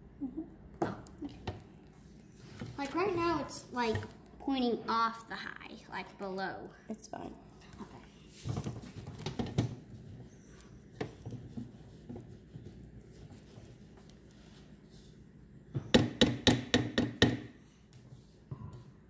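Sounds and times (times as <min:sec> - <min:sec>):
spatula stirring thick dough: 0:08.3 - 0:16.4.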